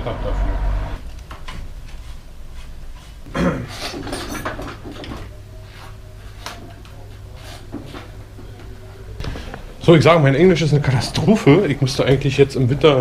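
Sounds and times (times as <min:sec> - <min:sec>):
metal bicycle parts clunking: 0:03.9 - 0:05.3.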